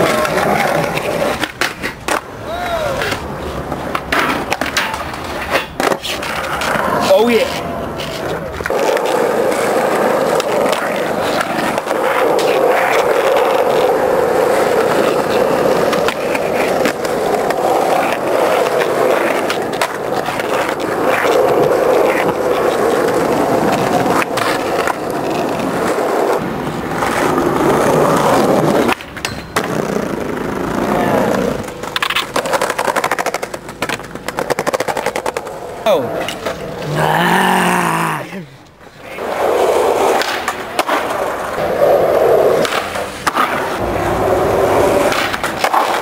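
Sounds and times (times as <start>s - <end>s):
skateboard wheels rolling on concrete: 0.0s - 46.0s
skateboard knocking on ground: 44.8s - 46.0s.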